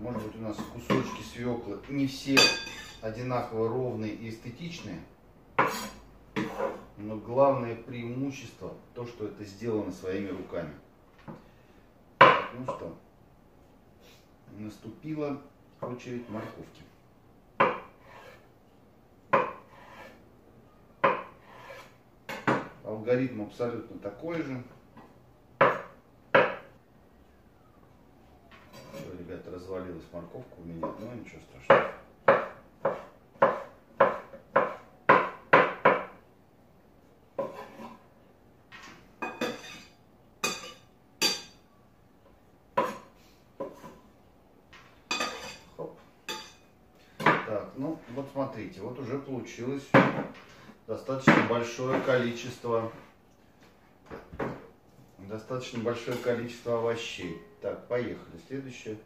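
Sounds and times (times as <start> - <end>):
knife scraping board: 5.6 - 6.9, 16.0 - 16.8, 17.7 - 18.5, 19.4 - 20.2, 21.1 - 22.0, 37.4 - 38.0
knife chopping on wooden board: 17.6 - 18.4, 19.3 - 20.1, 21.0 - 22.7, 25.6 - 26.7, 31.7 - 36.2.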